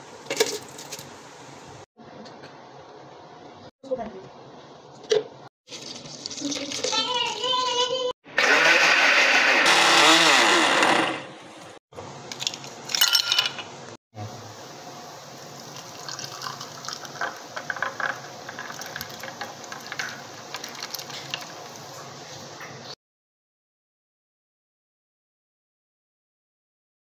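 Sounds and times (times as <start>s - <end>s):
electric blender running: 8.4s - 11.8s
milkshake pouring into glass: 15.8s - 21.5s.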